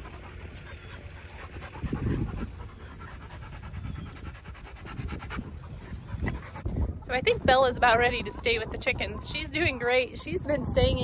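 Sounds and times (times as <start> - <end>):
dogs panting: 0.0 - 11.0.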